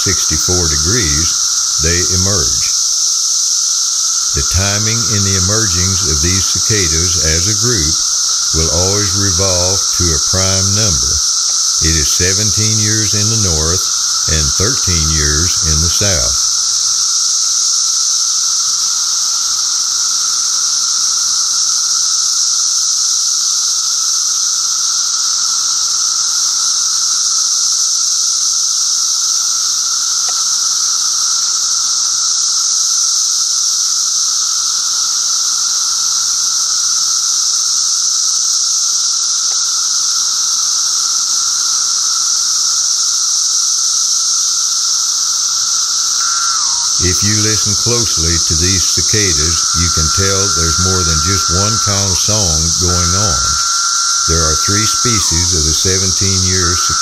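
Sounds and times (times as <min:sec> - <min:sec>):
lower steady tone: 0:00.0 - 0:02.9, 0:04.2 - 0:16.7, 0:45.8 - 0:57.0
cicadas droning: 0:00.0 - 0:57.0.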